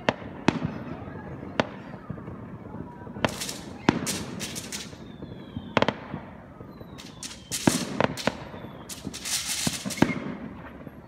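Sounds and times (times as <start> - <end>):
fireworks bangs and crackling: 0.0 - 11.0
faint falling whistles: 3.3 - 5.9, 6.5 - 11.0.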